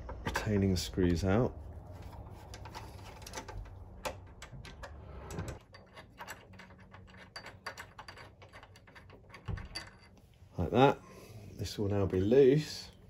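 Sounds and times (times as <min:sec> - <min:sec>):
screwdriver clicking and scraping metal: 0:02.0 - 0:10.2.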